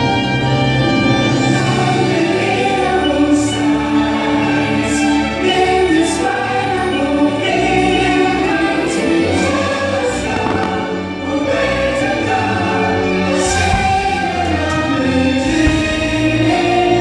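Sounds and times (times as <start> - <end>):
choir singing with orchestra: 0.0 - 17.0.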